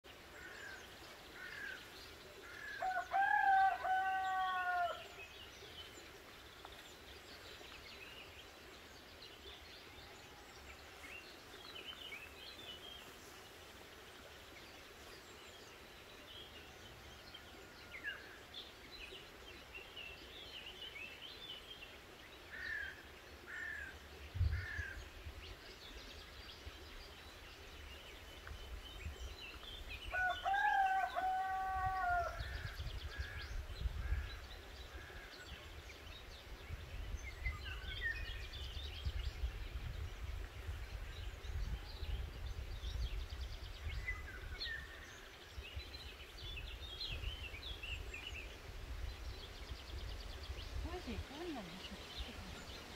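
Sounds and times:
rooster crowing: 0:02.8 - 0:05.0, 0:30.1 - 0:32.4
small birds chirping: 0:04.8 - 0:30.5, 0:32.5 - 0:52.9.

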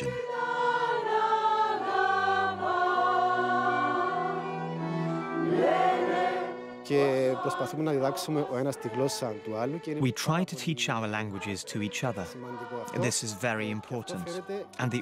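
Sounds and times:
mixed choir singing: 0:00.0 - 0:15.0.

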